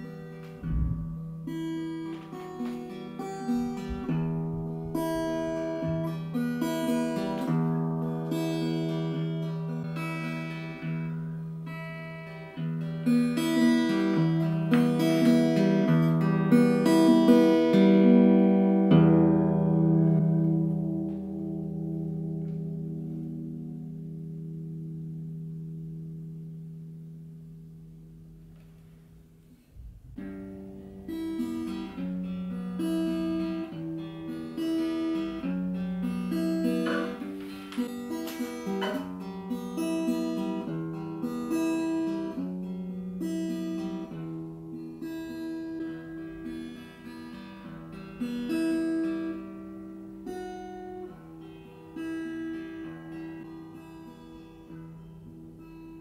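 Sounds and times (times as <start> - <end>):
acoustic guitar playing: 0.0 - 56.0.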